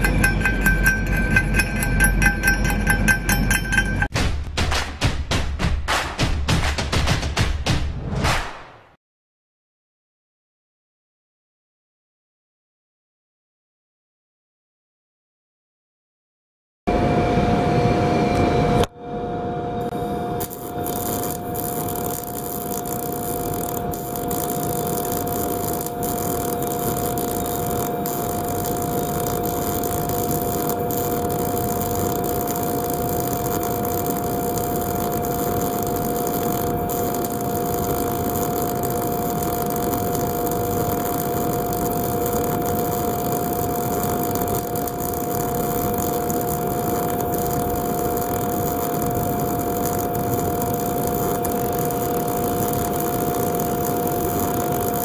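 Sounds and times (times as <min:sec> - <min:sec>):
steady hum: 0:16.9 - 0:55.0
welding arc crackling hiss: 0:20.4 - 0:55.0.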